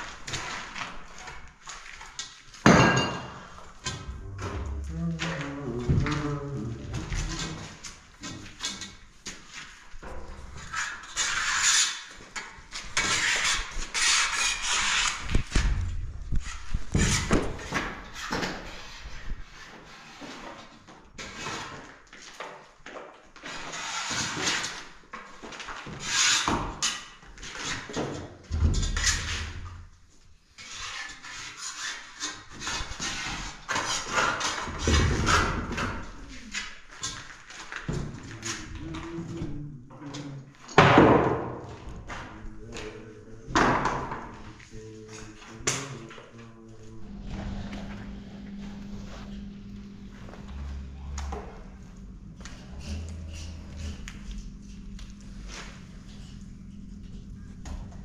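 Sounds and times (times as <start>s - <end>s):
wooden straightedge scraping wall: 3.3s - 22.0s, 23.4s - 24.9s, 30.6s - 39.2s, 46.9s - 58.0s
trowel scrapes: 10.4s - 20.6s.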